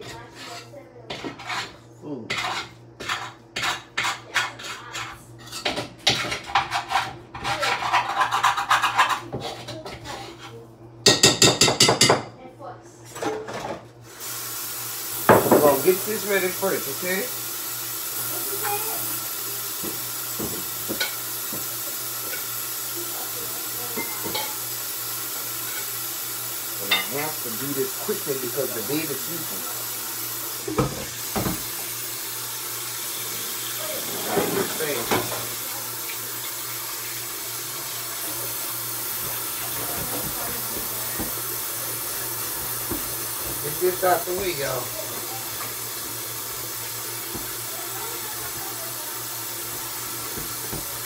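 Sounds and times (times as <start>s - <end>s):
utensil scraping and knocking pan: 0.0s - 10.5s
tap running into sink: 15.2s - 15.8s, 30.6s - 31.8s, 39.1s - 41.5s, 47.2s - 48.0s, 49.8s - 51.0s
dishware knocks: 15.3s - 15.8s.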